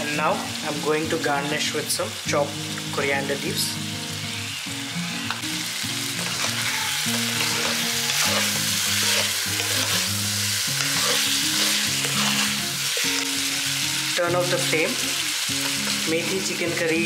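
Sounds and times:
curry sizzling in a pan: 0:00.0 - 0:17.0
spoon scraping while stirring: 0:07.3 - 0:10.1, 0:10.8 - 0:12.6.

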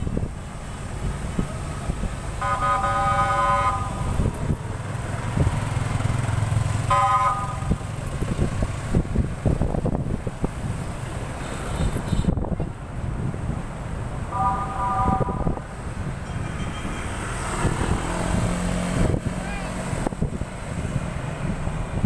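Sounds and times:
traffic engine and road rumble: 0:00.0 - 0:22.0
vehicle horn honking: 0:02.4 - 0:04.3, 0:06.9 - 0:07.8, 0:11.4 - 0:12.4, 0:14.3 - 0:15.6, 0:16.2 - 0:17.3.

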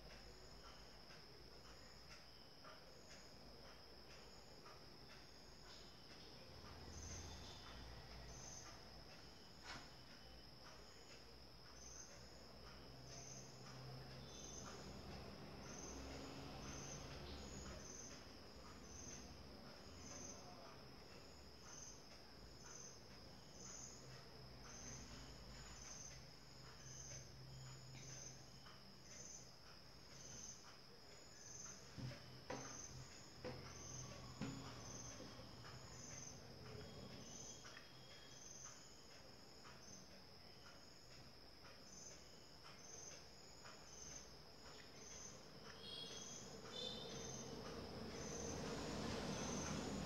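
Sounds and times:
high-pitched insect chirping: 0:00.2 - 0:50.0.

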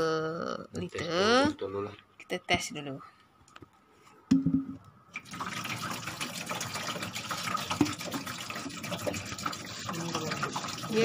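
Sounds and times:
water pouring and splashing: 0:05.1 - 0:11.0.

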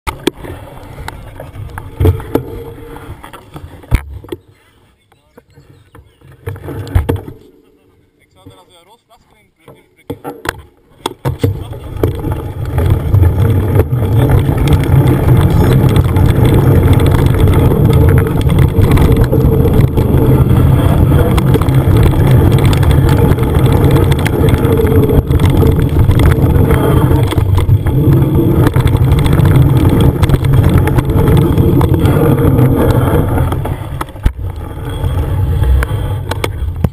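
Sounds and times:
bike tyres rolling on dirt: 0:00.1 - 0:07.4, 0:11.2 - 0:36.9
wind buffeting microphone: 0:12.0 - 0:36.9.

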